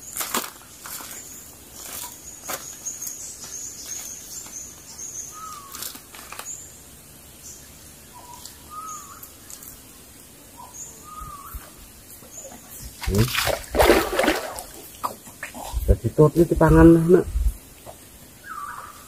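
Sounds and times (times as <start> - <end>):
faint high insect hum: 0.0 - 19.0.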